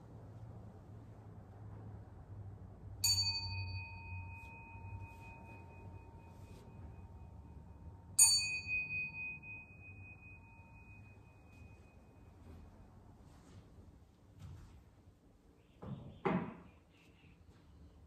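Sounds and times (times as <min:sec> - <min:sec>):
bowl bell ringing: 0:03.0 - 0:12.6.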